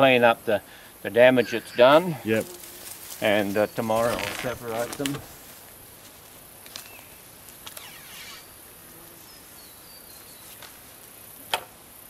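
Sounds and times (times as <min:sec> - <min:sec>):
high insect trill: 0:01.2 - 0:06.2, 0:06.8 - 0:11.3.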